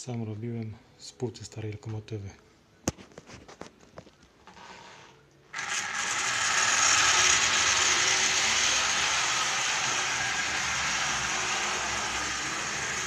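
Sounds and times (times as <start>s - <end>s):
model train whirring and rattling: 5.5s - 13.0s.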